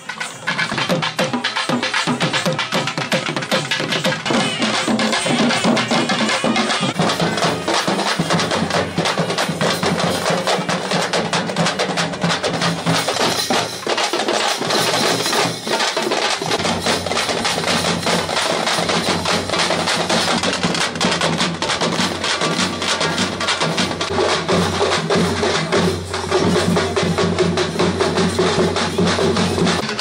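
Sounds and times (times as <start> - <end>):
barrel drums beating fast rhythm: 0.0 - 30.0.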